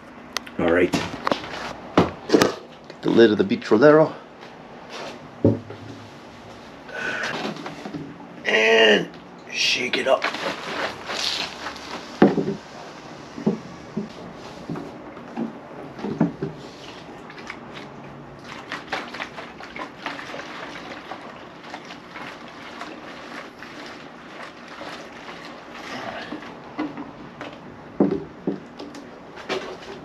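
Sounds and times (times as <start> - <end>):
liquid sloshing in fuel can: 10.0 - 30.0.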